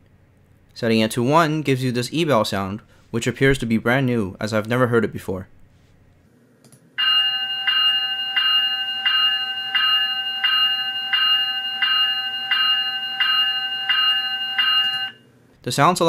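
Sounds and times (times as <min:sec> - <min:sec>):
electronic locomotive bell ringing: 0:07.0 - 0:15.2.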